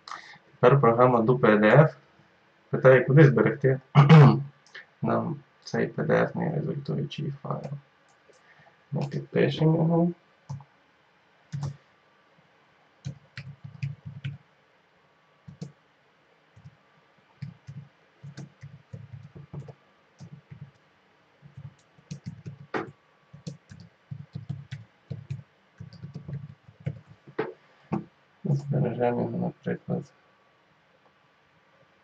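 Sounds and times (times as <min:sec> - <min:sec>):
computer keyboard typing: 0:11.5 - 0:11.8, 0:13.0 - 0:14.4, 0:15.5 - 0:15.7, 0:17.4 - 0:20.8, 0:21.4 - 0:27.4.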